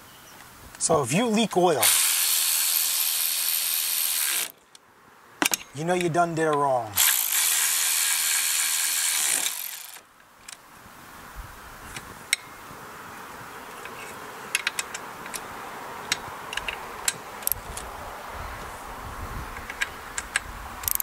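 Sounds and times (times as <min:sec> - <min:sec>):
electric ratchet running: 0:01.8 - 0:04.6, 0:07.0 - 0:10.0
clicks and clinks of metal parts: 0:05.4 - 0:06.1, 0:13.8 - 0:15.4.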